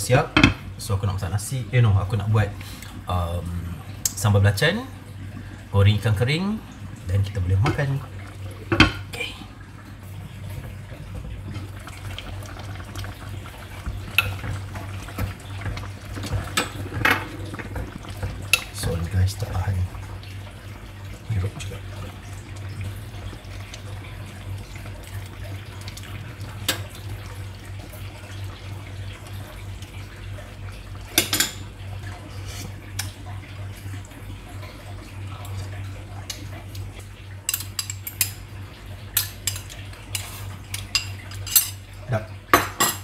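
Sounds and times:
steady low hum: 0.0 - 41.1
dishes and utensils clinking: 16.2 - 17.9, 42.6 - 43.0.

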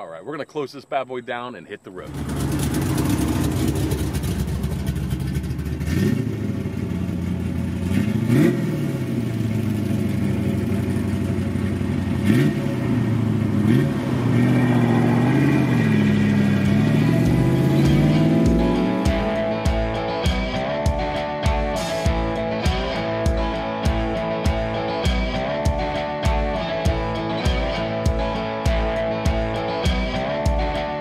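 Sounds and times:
car engine revving: 2.1 - 21.1.

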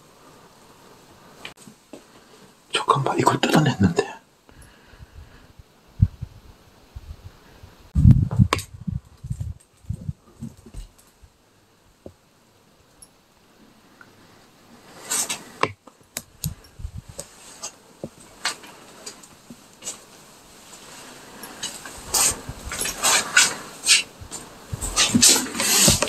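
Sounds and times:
scraping on wooden floor: 20.7 - 26.0.

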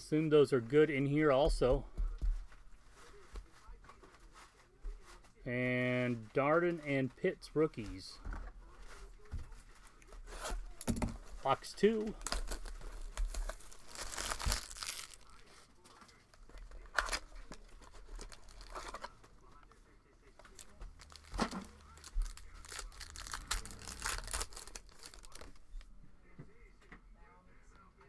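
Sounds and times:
wrappers ripping and crinkling: 12.0 - 15.5, 16.4 - 19.2, 20.4 - 25.7
box being torn open: 12.2 - 15.2, 22.6 - 25.4.

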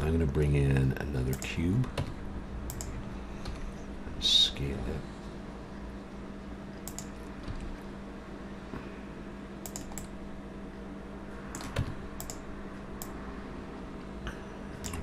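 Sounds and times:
steady low hum: 0.0 - 15.0
keyboard keys clicking: 2.7 - 3.6, 6.8 - 7.7, 9.6 - 10.1, 11.5 - 12.4, 14.8 - 15.0.

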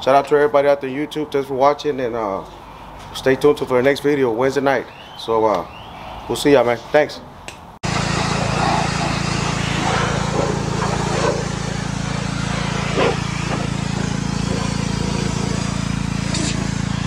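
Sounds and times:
pressure washer motor drone: 7.8 - 17.0
water spray hissing: 7.9 - 17.0.

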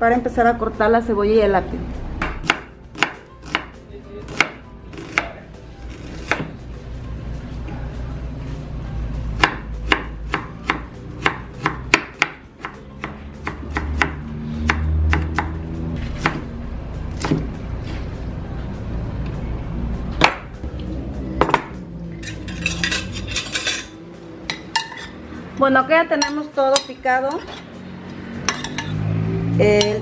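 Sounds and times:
knife chopping on wooden board: 2.2 - 6.6, 9.4 - 16.4, 17.1 - 18.0
metal spoons clinking: 22.2 - 25.2, 28.4 - 29.0.

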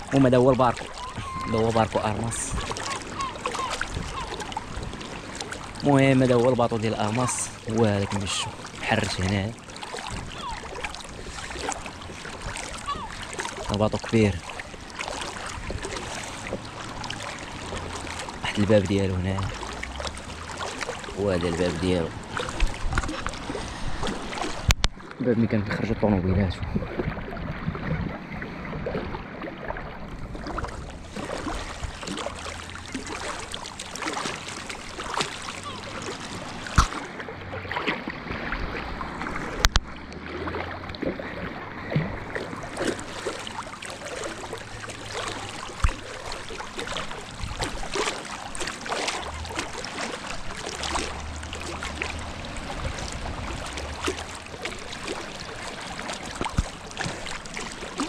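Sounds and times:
water lapping and splashing: 0.0 - 58.0.

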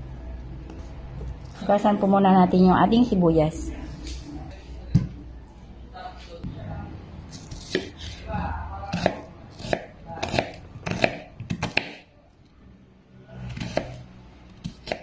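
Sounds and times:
knife chopping on wooden board: 8.9 - 12.0, 14.6 - 15.0.

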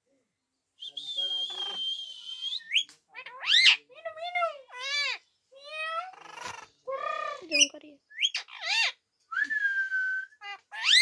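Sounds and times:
parakeet squawk: 3.1 - 6.7, 8.2 - 9.0, 10.4 - 11.0
parakeet mimicking calls: 3.1 - 6.8, 7.4 - 9.0, 10.4 - 11.0.

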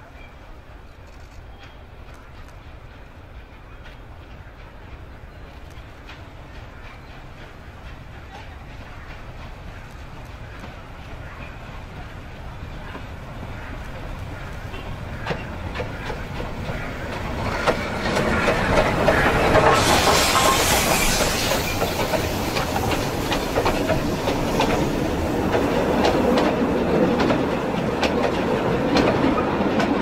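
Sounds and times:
steam locomotive passing: 0.0 - 30.0
wagons clattering over rail joints: 11.3 - 30.0.

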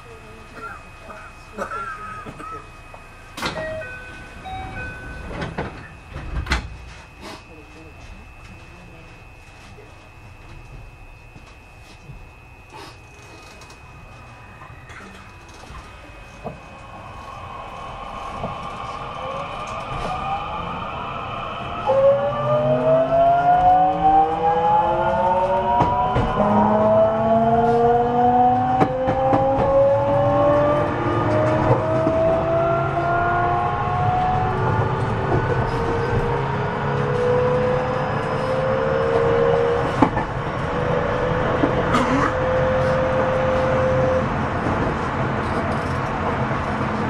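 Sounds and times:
electric train motor whine: 0.0 - 46.9
low running hum: 0.0 - 47.0.

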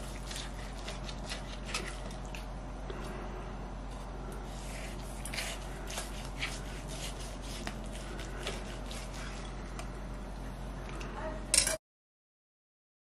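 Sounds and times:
soft squishing: 3.8 - 11.1
knife slicing crisp skin: 4.7 - 9.5.

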